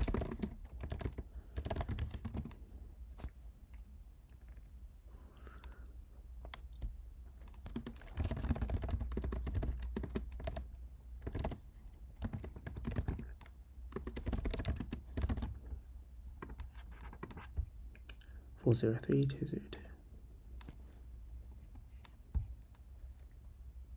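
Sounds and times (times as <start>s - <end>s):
typing on computer keyboard: 0.0s - 2.6s, 6.5s - 15.6s.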